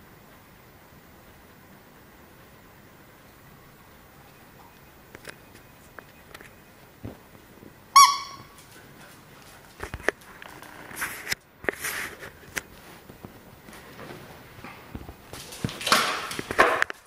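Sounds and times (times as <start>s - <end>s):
dog yelping: 8.0s - 8.6s
dog claws clicking on tile: 15.0s - 17.0s.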